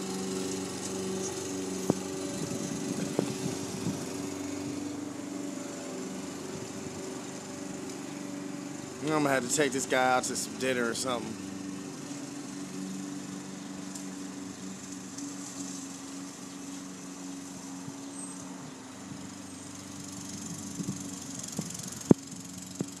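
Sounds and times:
lawn mower engine running: 0.0s - 23.0s.

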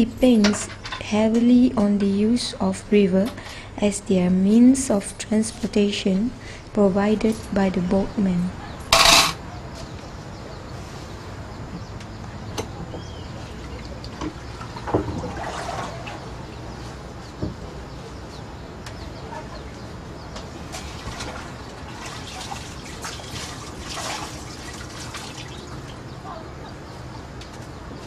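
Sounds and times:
water splashing and sloshing: 13.4s - 16.8s, 20.5s - 26.2s.

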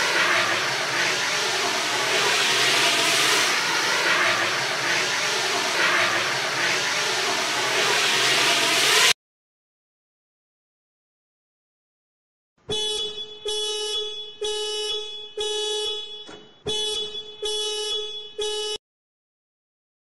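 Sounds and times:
loud rushing hiss: 0.0s - 9.2s.

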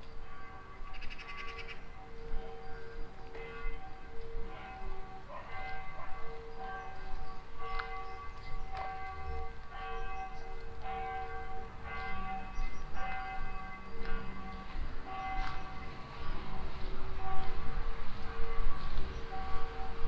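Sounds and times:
church bells ringing: 0.0s - 20.0s.

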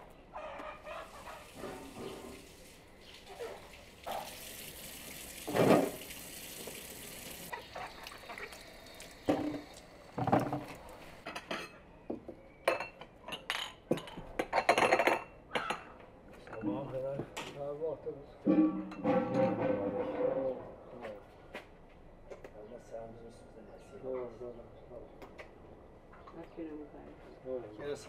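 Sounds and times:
water running from a tap: 1.2s - 10.7s
dishes and cutlery clattering: 11.2s - 11.8s, 12.7s - 15.9s, 18.5s - 20.2s.

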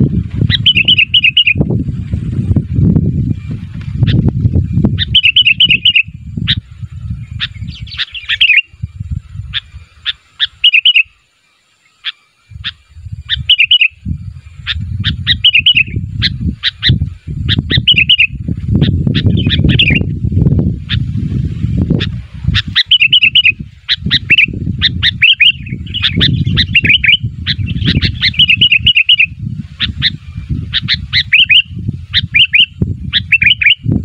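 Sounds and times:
bird warbling song: 0.0s - 34.0s.

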